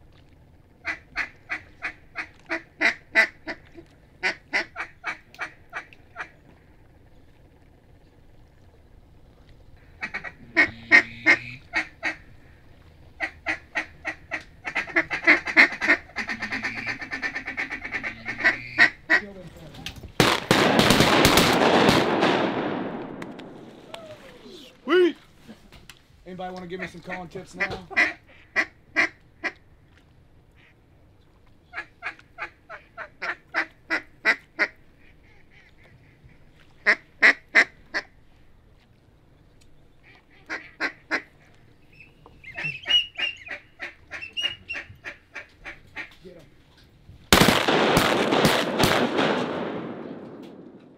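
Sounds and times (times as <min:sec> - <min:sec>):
duck call quacks: 0:00.8 - 0:03.6, 0:04.2 - 0:06.3, 0:09.8 - 0:12.2, 0:13.2 - 0:19.3, 0:26.8 - 0:29.6, 0:31.7 - 0:38.1, 0:40.0 - 0:41.4, 0:42.4 - 0:46.2
duck call rolling chatter: 0:00.8 - 0:06.4, 0:09.8 - 0:12.3, 0:13.2 - 0:19.4, 0:26.7 - 0:29.6, 0:42.4 - 0:46.2.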